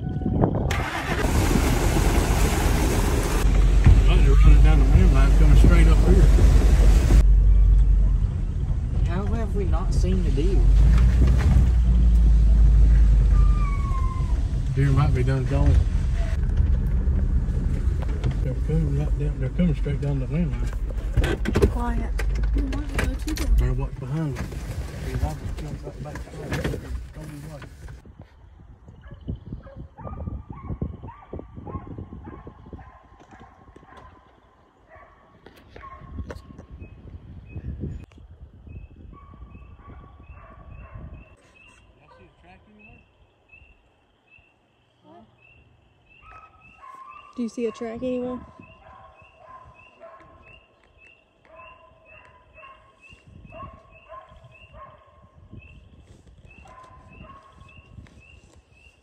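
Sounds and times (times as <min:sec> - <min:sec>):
low thumps and rumble: 0:01.3 - 0:32.7
distant hounds baying: 0:29.0 - 0:36.3, 0:39.1 - 0:55.9, 0:56.5 - 0:58.9
hounds baying: 0:46.1 - 0:50.8, 0:51.4 - 0:55.3, 0:56.5 - 0:57.8.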